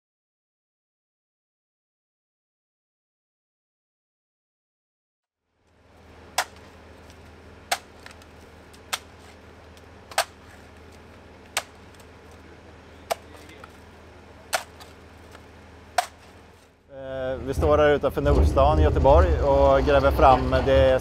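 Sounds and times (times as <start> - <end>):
low machine hum: 5.6 - 21.0
digging tool striking stony ground: 6.3 - 6.7, 7.7 - 9.4, 10.1 - 12.1, 13.0 - 13.8, 14.5 - 16.5.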